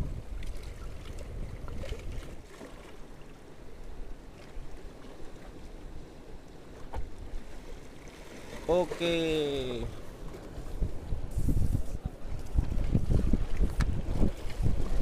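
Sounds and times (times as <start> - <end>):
wind buffeting microphone: 0.0 - 2.5, 9.8 - 15.0
waves washing against boulders: 4.0 - 15.0.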